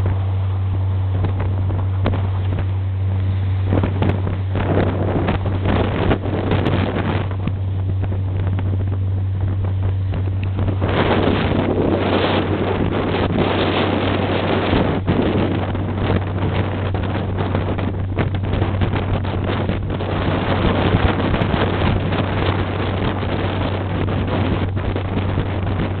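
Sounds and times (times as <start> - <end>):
motorboat engine humming: 0.0 - 26.0
water rushing and splashing: 0.0 - 26.0
wind buffeting microphone: 0.0 - 26.0.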